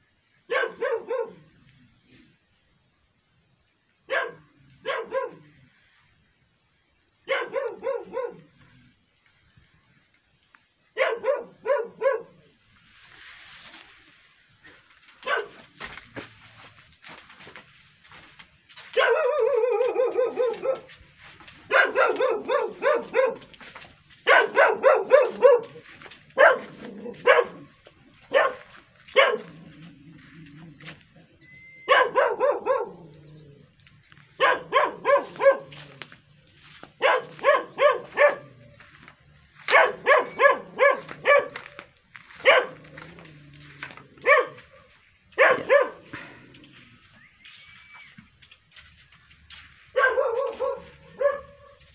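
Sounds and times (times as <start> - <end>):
dog barking: 0.5 - 1.6, 4.1 - 5.7, 7.2 - 8.7, 10.9 - 12.6, 15.2 - 15.9, 18.8 - 31.0, 31.8 - 33.2, 34.3 - 36.2, 36.8 - 46.4, 49.6 - 51.9.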